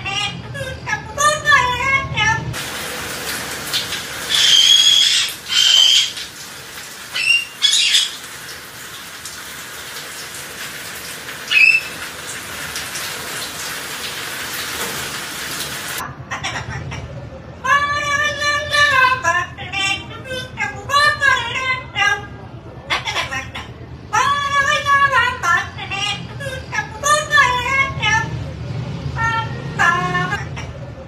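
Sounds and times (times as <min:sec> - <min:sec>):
steady rain: 0:02.6 - 0:16.0
parrots squawking: 0:03.7 - 0:06.4, 0:07.0 - 0:08.4, 0:11.5 - 0:12.1, 0:22.9 - 0:23.7.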